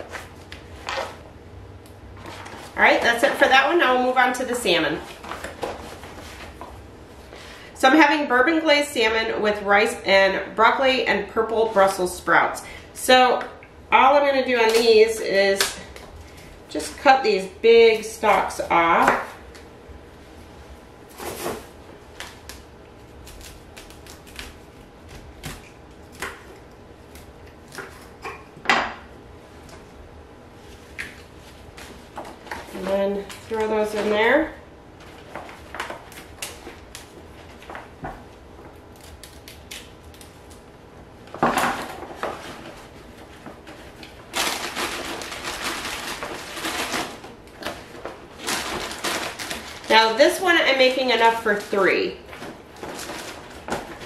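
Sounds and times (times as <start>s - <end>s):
plastic bag crinkling: 41.8s - 54.0s.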